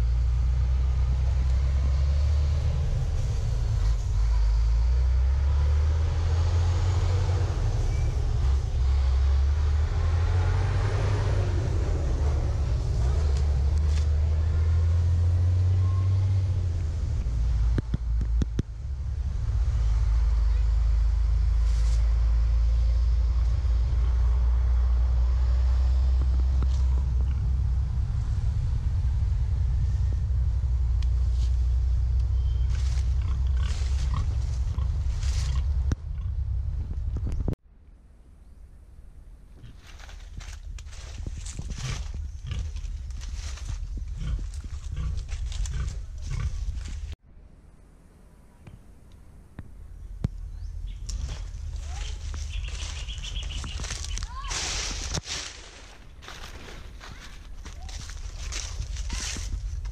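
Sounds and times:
footsteps through grass and leaves: 21.5 - 22.3, 31.1 - 35.8, 39.6 - 47.2, 50.9 - 59.9
wind buffeting microphone: 23.2 - 37.6, 39.6 - 47.2, 49.6 - 55.3, 56.9 - 59.9
pig grunting: 33.1 - 36.3, 44.1 - 46.7.

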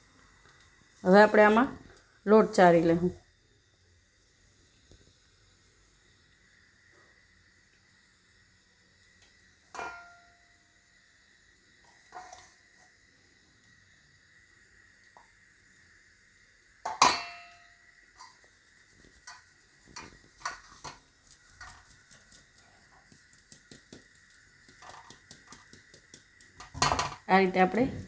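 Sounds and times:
sieve rim tapping and rattling: 24.7 - 27.2.

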